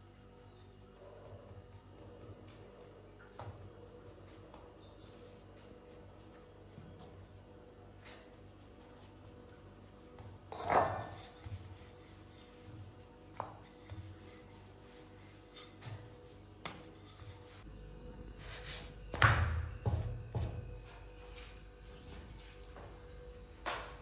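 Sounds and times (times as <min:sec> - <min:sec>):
knocks and thumps in kitchen: 0:19.1 - 0:20.8.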